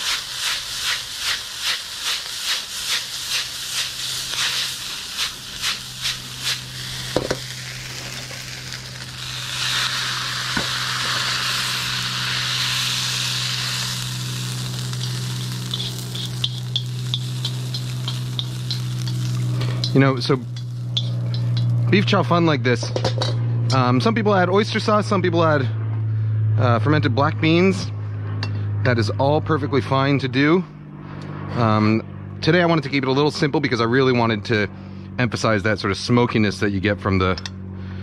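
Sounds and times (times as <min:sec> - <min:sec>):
noodles sizzling in a wok: 0:00.0 - 0:21.8
low steady hum: 0:02.2 - 0:38.0.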